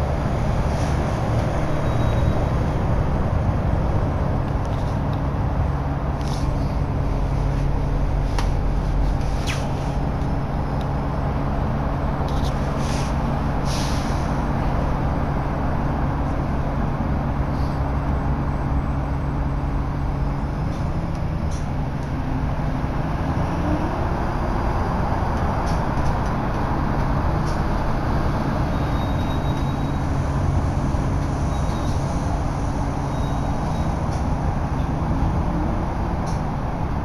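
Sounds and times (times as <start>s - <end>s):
bus engine low drone: 0.0s - 37.0s
short rattles and hisses: 9.0s - 10.0s, 12.3s - 14.4s.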